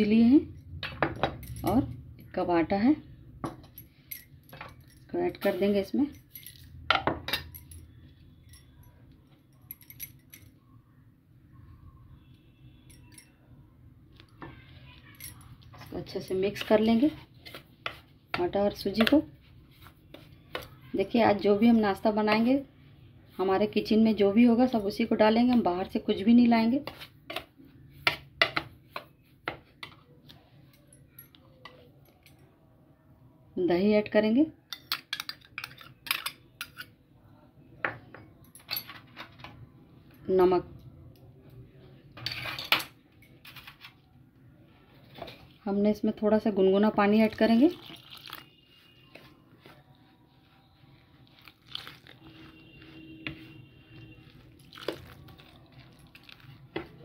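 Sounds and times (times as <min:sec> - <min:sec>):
spoon scraping gritty flour mix: 0:15.8 - 0:22.6, 0:26.4 - 0:30.6, 0:47.1 - 0:57.0
metal spoon scraping a dish: 0:34.8 - 0:37.0.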